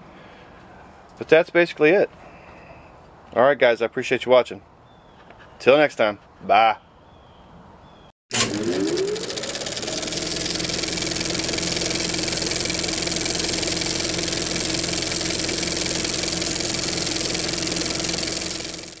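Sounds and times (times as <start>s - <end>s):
engine running steadily: 8.3s - 19.0s.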